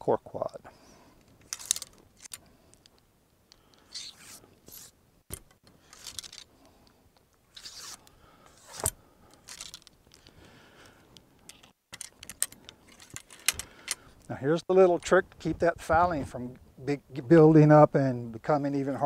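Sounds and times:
ramrod scraping in gun barrel: 1.3s - 2.4s, 3.7s - 6.5s, 7.5s - 10.2s, 11.5s - 14.0s.

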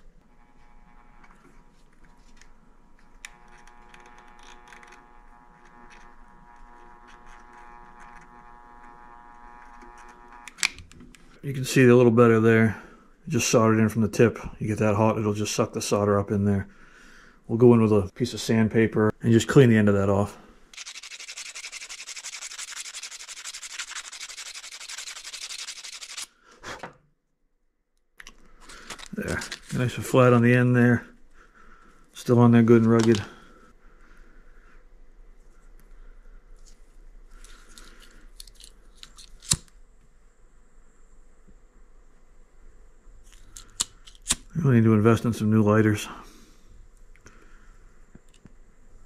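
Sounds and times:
soldering gun buzzing: 0.2s - 1.7s, 2.4s - 10.8s, 20.7s - 26.3s
sandpaper rubbing metal: 20.8s - 26.3s.

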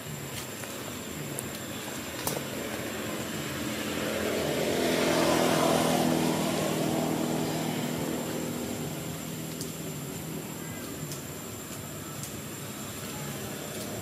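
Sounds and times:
passing vehicle engine hum: 0.9s - 11.7s.

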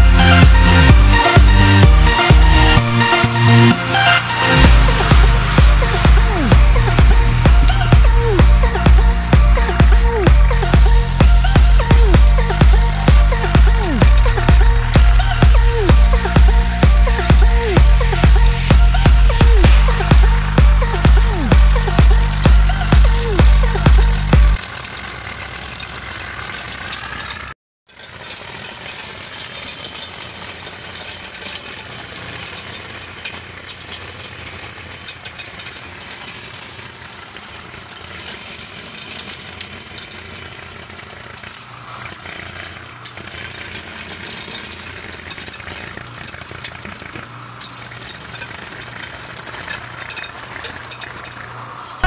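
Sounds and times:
low motor hum: 0.0s - 27.6s
trimmer line cutting grass: 0.0s - 52.0s.

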